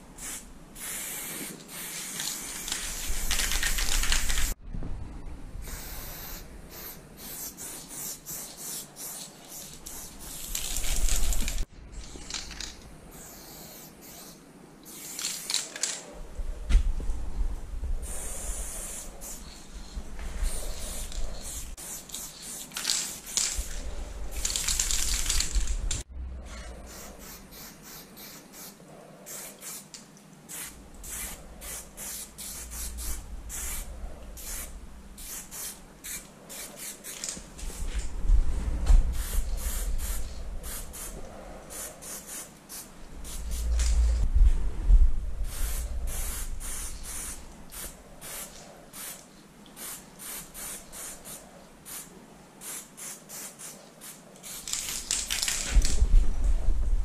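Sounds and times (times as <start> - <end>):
spray paint can hissing: 0.2 - 4.6, 5.6 - 16.0, 18.0 - 26.0, 26.8 - 37.9, 39.1 - 44.2, 45.5 - 49.2, 49.8 - 55.9
low rumble: 4.6 - 5.7, 25.6 - 27.0, 30.7 - 35.2, 37.8 - 39.4, 43.0 - 46.8, 55.8 - 57.0.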